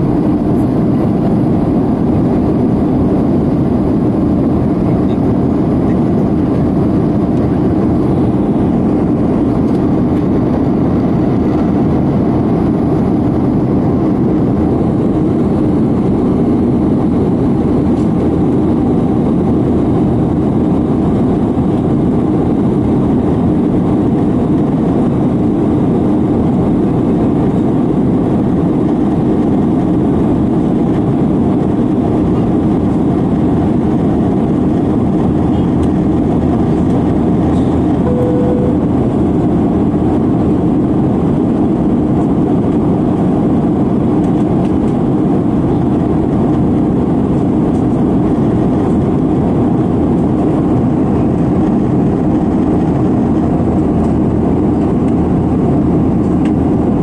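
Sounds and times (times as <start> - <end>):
jet engines roaring in cabin: 0.0 - 57.0
rushing air: 33.4 - 41.5.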